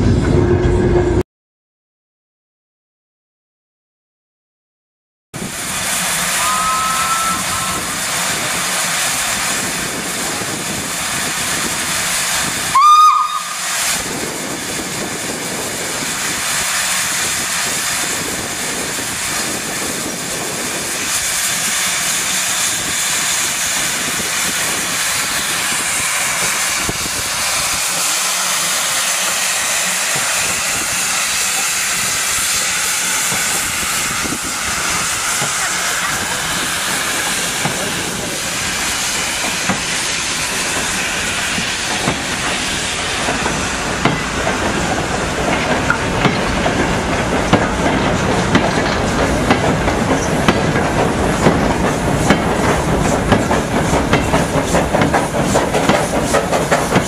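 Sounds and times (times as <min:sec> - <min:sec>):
steam hissing: 0:05.4 - 0:57.0
steam whistle blast: 0:06.3 - 0:08.2, 0:12.7 - 0:13.7.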